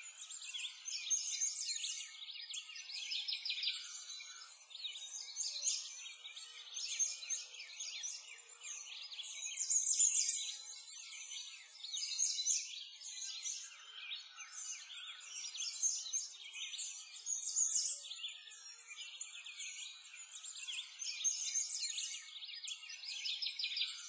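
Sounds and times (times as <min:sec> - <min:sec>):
songbirds chirping and trilling: 0:00.0 - 0:24.0.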